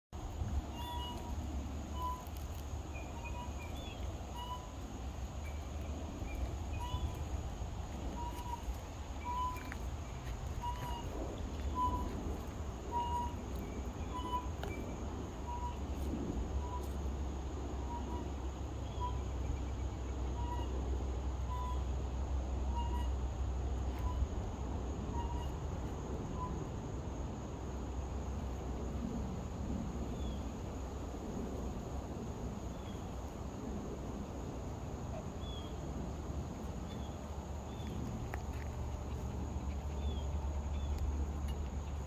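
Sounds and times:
steady low rumble: 0:00.1 - 0:42.0
small birds chirping: 0:02.0 - 0:14.9.

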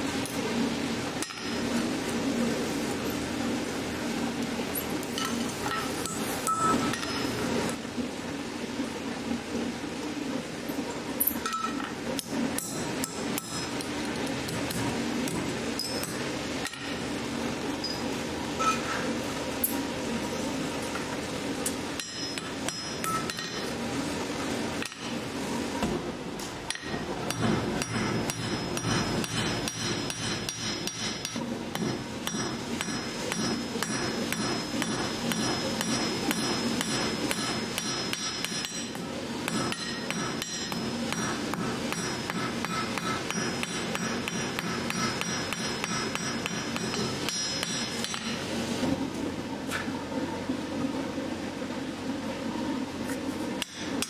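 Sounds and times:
hammer striking steel on anvil: 0:01.2 - 0:01.6, 0:05.2 - 0:07.3, 0:11.4 - 0:13.9, 0:22.0 - 0:23.7, 0:26.7 - 0:48.4, 0:53.6 - 0:54.0.

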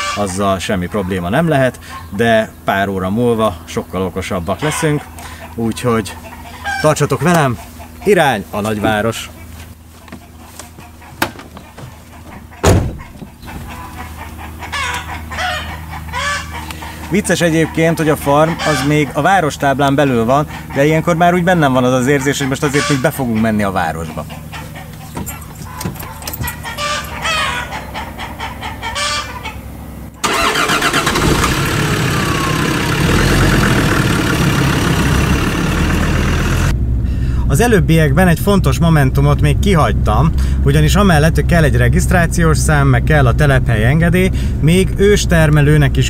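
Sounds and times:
steady low hum: 0:00.0 - 0:30.2, 0:32.7 - 0:46.0
chickens clucking: 0:00.0 - 0:36.7
car engine running: 0:05.0 - 0:22.9, 0:23.5 - 0:46.0
car door slamming: 0:12.6 - 0:13.6.

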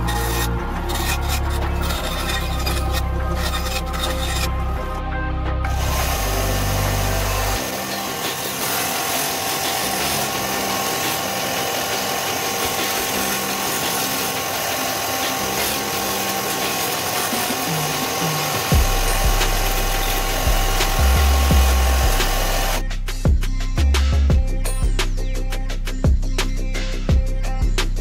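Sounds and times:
disc sander grinding plastic: 0:00.0 - 0:05.0, 0:05.7 - 0:22.8
music with heavy bass: 0:00.0 - 0:28.0.

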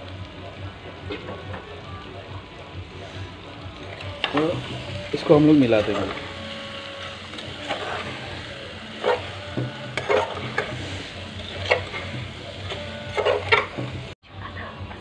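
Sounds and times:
frying sizzle: 0:00.0 - 0:15.0
spoon scraping a metal pot: 0:07.0 - 0:08.3, 0:08.9 - 0:14.0.

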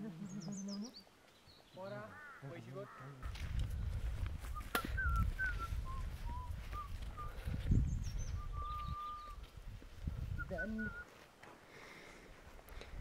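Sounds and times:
thin whistled notes: 0:04.5 - 0:07.4, 0:08.0 - 0:09.4, 0:10.3 - 0:11.1.

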